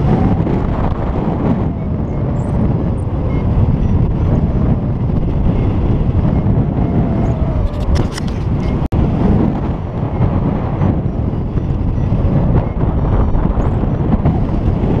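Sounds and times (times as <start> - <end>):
wind buffeting microphone: 0.0 - 15.0
brief crackles: 7.6 - 8.9.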